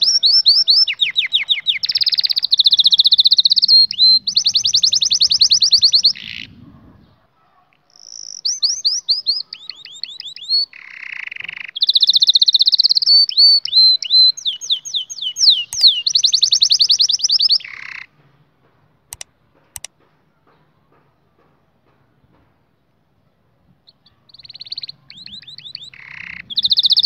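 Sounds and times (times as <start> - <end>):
canary singing trills: 0.0 - 18.1, 23.8 - 27.0
short clicks: 19.1 - 19.9.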